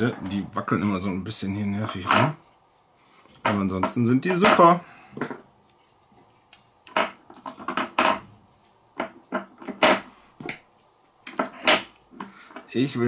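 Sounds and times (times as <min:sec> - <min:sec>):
plastic parts clicking and knocking: 0:06.8 - 0:08.3, 0:09.0 - 0:10.6, 0:11.2 - 0:12.7.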